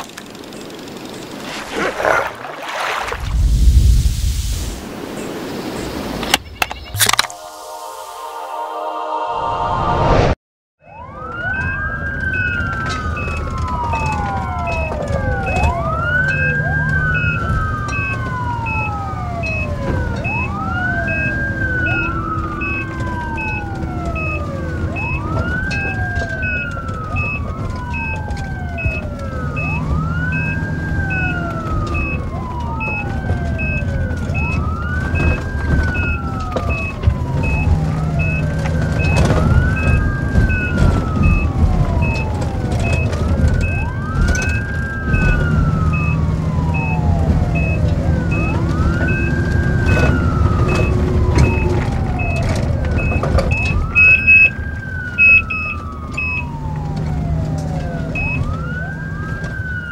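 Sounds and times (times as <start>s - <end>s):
engine rumble: 0.0s - 7.3s, 10.9s - 59.9s
muffled ambulance siren wailing: 7.0s - 59.9s
heart monitor beeping: 13.2s - 32.2s, 32.8s - 54.6s, 55.2s - 56.5s.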